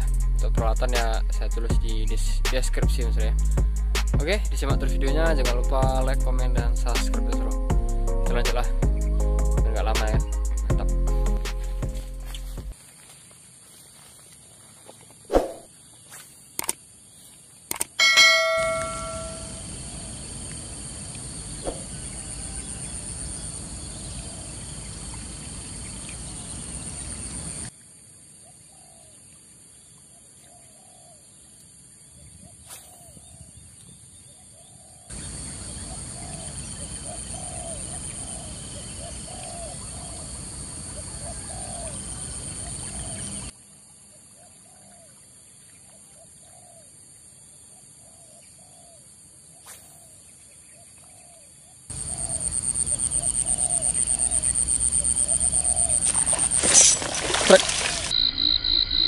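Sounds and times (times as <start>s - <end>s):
insect drone: 11.6s - 45.6s, 46.4s - 59.0s.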